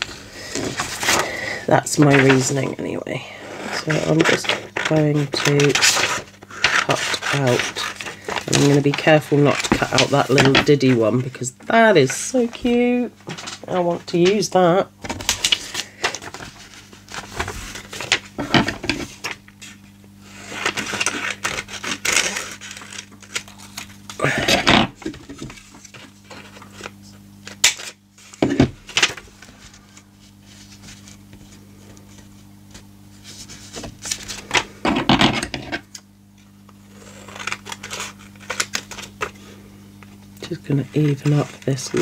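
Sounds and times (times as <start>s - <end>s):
paper crinkling: 0.0s - 14.5s, 15.1s - 34.7s, 36.6s - 42.0s
steady low hum: 0.0s - 42.0s
scissors snipping paper: 37.1s - 39.2s.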